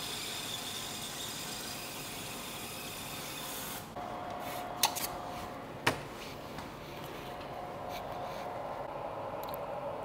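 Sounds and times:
steady hum: 3.9s - 10.0s.

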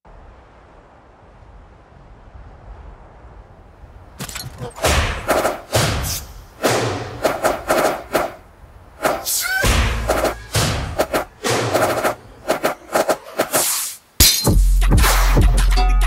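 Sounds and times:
instrumental beat music: 14.4s - 16.0s.

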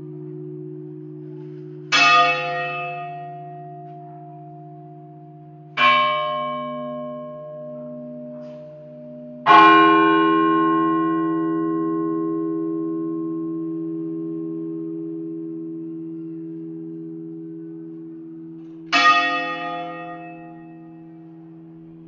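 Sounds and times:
large bell ringing: 0.0s - 22.0s.

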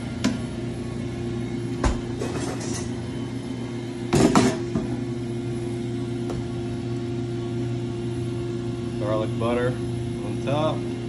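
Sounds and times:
steady mechanical hum: 0.0s - 11.0s
kitchen utensils clattering: 2.2s - 2.9s.

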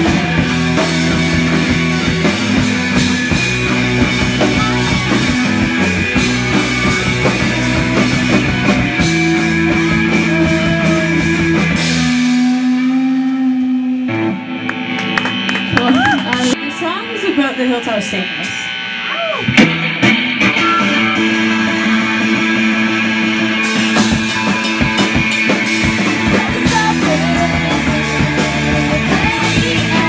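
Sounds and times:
drum kit and cymbals: 0.0s - 14.3s, 14.9s - 30.0s
bass guitar: 0.0s - 30.0s
electric guitar: 0.0s - 30.0s.

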